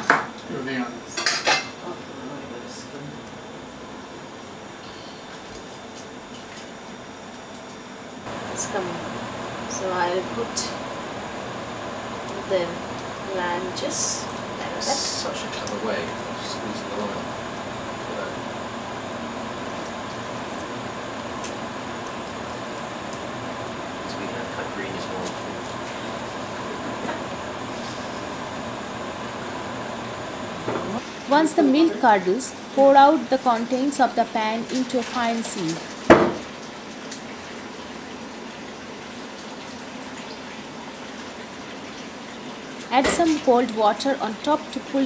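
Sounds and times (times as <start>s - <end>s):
steady kitchen hiss: 0.0s - 45.0s.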